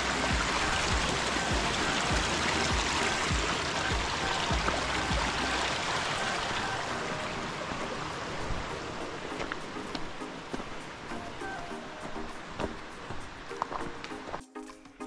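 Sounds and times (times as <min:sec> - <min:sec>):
stream water rushing: 0:00.0 - 0:14.4
footsteps walking: 0:08.2 - 0:14.8.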